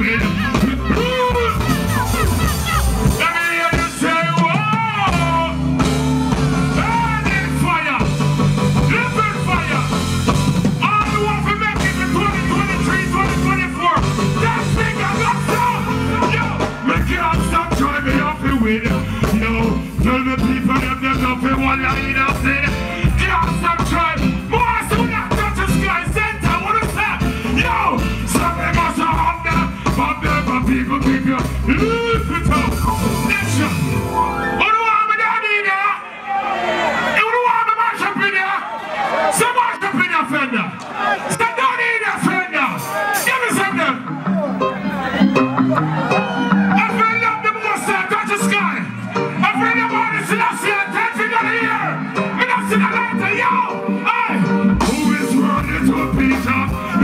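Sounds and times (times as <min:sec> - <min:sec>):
man singing through pa: 0:00.0 - 0:05.6, 0:14.4 - 0:32.8, 0:52.5 - 0:57.0
reggae band playing: 0:00.0 - 0:57.0.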